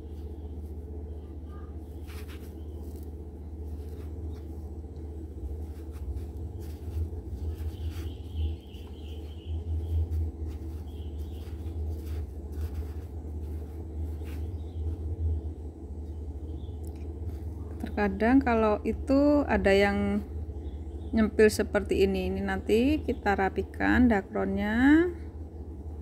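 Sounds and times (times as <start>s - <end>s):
fiberfill rustling: 0.0s - 15.9s
steady low hum: 0.0s - 26.0s.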